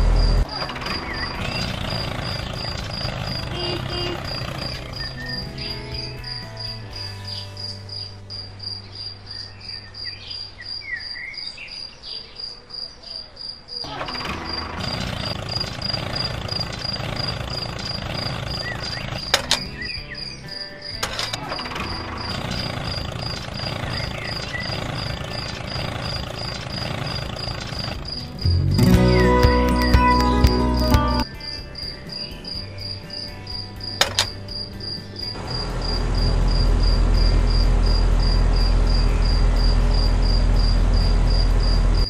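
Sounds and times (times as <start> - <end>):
sharp click: 19.2 - 19.8, 21.0 - 21.4, 34.0 - 34.4.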